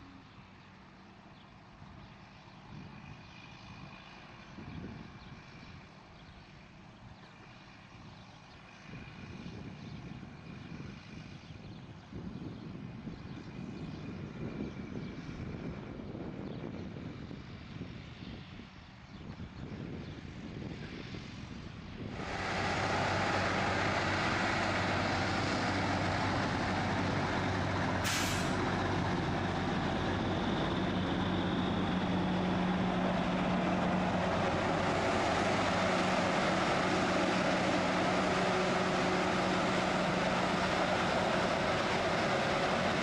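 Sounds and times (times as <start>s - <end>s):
truck and machinery engine drone: 0.0s - 43.0s
air hiss: 28.0s - 28.6s.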